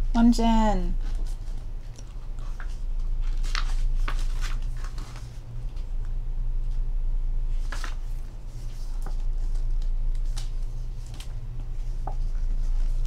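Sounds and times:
low hum: 0.0 - 13.0
book pages turning: 1.0 - 5.9, 7.5 - 13.0.

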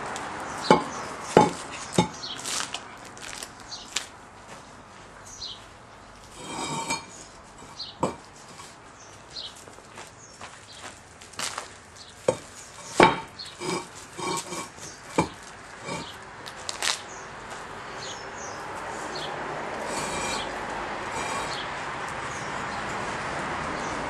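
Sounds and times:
pavers knocking and scraping: 0.6 - 2.2, 12.2 - 16.2.

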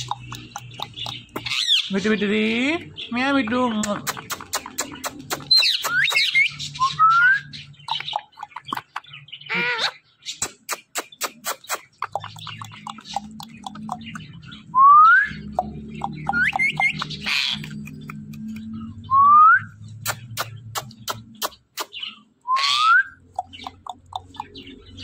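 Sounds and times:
quick sharp bird clicks: 0.0 - 1.9, 3.8 - 6.5, 7.8 - 9.0, 10.3 - 14.3, 15.5 - 18.7, 20.0 - 22.2, 23.2 - 24.8
parakeet whistling: 14.8 - 17.8.

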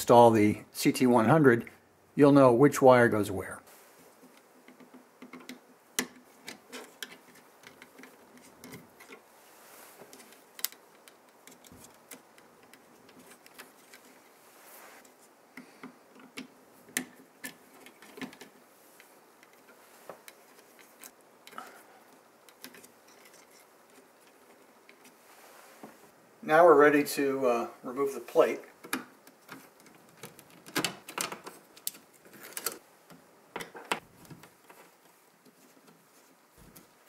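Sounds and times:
small clicks and rustling of paper labels: 4.2 - 9.3, 10.0 - 14.4, 15.0 - 25.2, 28.7 - 37.0.

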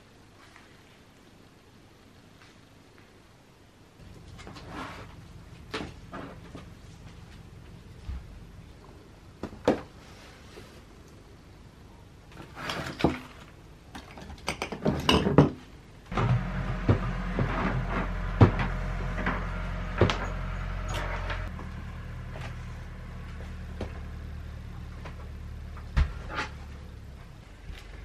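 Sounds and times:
steady low hum: 3.8 - 12.3, 15.9 - 28.0.

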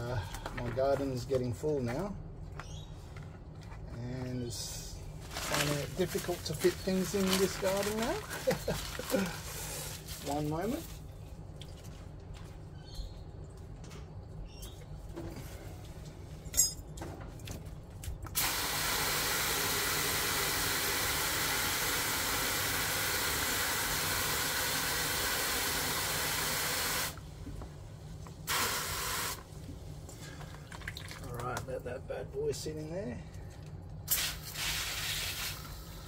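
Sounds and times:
hose spraying into plastic bucket: 5.4 - 10.8, 18.3 - 27.2, 28.5 - 29.5, 34.1 - 36.0.

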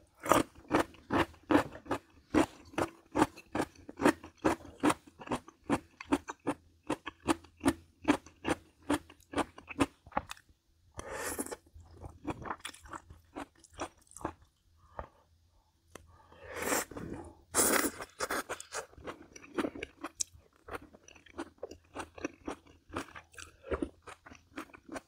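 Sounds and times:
crunchy chewing: 17.6 - 25.0.

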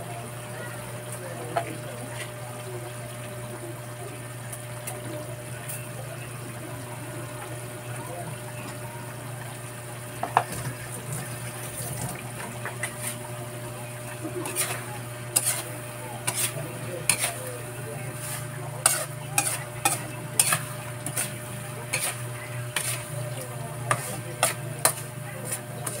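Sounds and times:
shrimp frying in oil: 0.0 - 26.0
metal spoon scraping pan: 12.7 - 13.3, 14.4 - 26.0.

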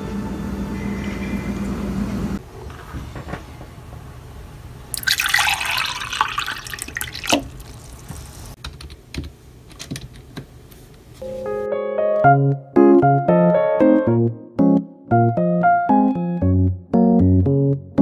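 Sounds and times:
water pouring into a glass: 5.0 - 8.1.

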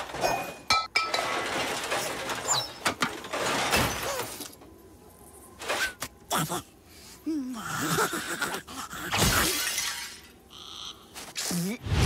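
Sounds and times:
cans and metal clattering: 0.0 - 4.6.

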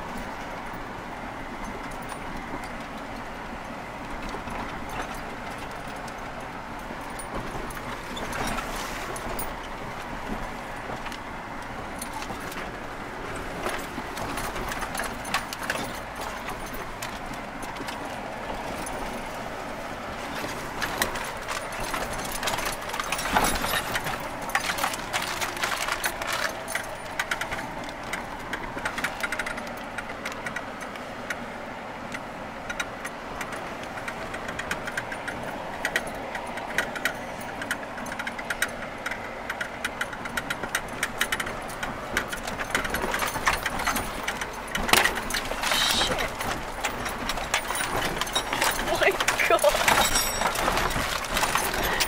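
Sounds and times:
off-road vehicle engine running: 0.0 - 52.0
rattles: 20.2 - 30.9, 32.7 - 52.0.

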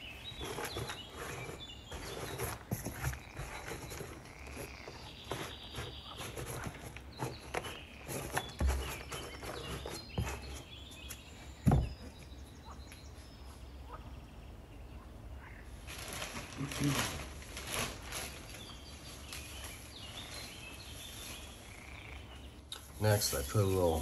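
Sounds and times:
substrate rustling and scraping: 0.0 - 12.1
dull knocks against plastic bin: 11.6 - 12.0.

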